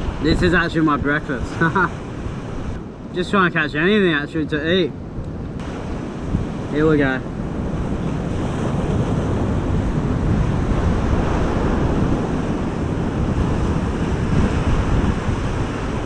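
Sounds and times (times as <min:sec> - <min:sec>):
wind buffeting microphone: 0:00.0 - 0:16.0
surf breaking on rocks: 0:05.6 - 0:16.0.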